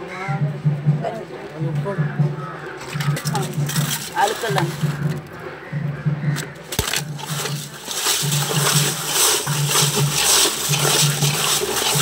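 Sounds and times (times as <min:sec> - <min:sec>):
eels scrubbed with salt: 0:02.8 - 0:05.2, 0:06.7 - 0:12.0.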